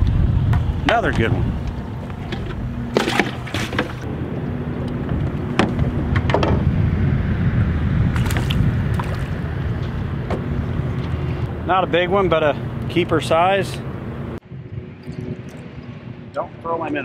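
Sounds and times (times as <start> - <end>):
wind noise on microphone: 0.0 - 11.6, 14.4 - 16.4
water sloshing against boat: 0.9 - 4.1.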